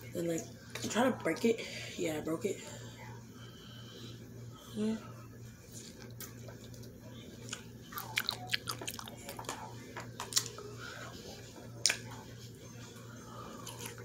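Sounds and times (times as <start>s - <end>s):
chewing crunchy pickle: 5.8s - 9.5s, 10.2s - 10.6s, 13.6s - 14.0s.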